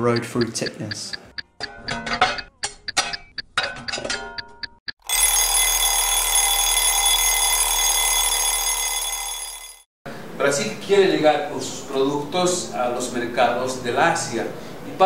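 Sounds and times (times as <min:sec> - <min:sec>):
bell-like ringing: 0:05.0 - 0:09.9.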